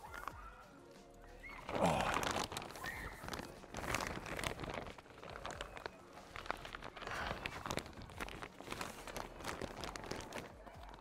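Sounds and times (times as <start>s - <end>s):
plastic film crinkling and rustling: 1.4s - 11.0s.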